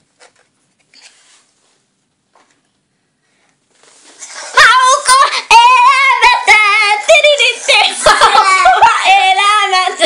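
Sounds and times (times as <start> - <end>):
child singing: 4.5 - 10.0.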